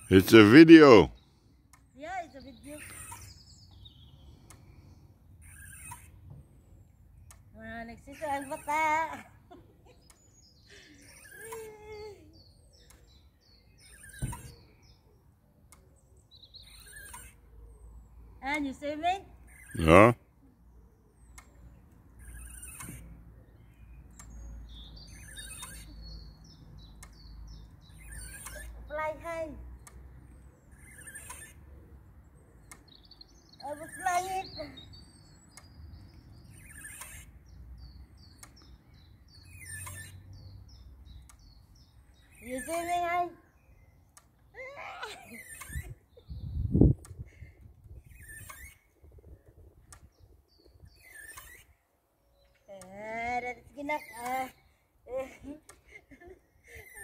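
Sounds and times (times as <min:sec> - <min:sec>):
small birds chirping: 0:00.0 - 0:57.0
short wavering squeal: 0:05.4 - 0:06.2, 0:30.8 - 0:31.6
faint clicks: 0:07.2 - 0:07.6, 0:24.1 - 0:24.4, 0:26.9 - 0:27.3, 0:29.8 - 0:30.1, 0:32.6 - 0:33.0, 0:38.3 - 0:38.8, 0:49.8 - 0:50.2.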